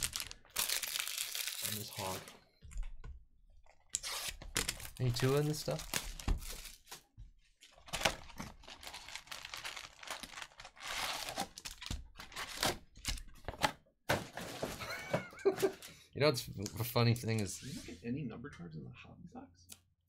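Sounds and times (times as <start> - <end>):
foil packs crinkling: 0.0 - 2.3, 7.9 - 12.6.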